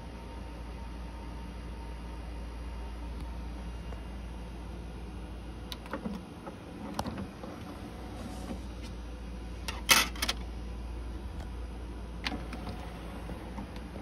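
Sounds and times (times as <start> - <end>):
steady low hum: 0.0 - 14.0
cd tray motor: 12.2 - 14.0.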